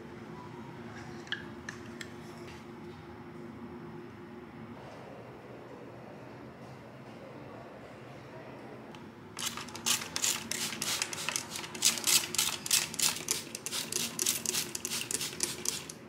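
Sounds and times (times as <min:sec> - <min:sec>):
spray bottle hissing sprays: 0:09.4 - 0:16.0.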